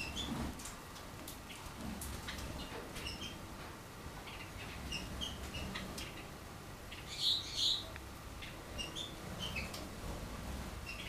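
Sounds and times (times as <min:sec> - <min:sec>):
canary chirping: 0:00.0 - 0:00.5, 0:01.4 - 0:03.4, 0:04.2 - 0:10.0, 0:10.8 - 0:11.0.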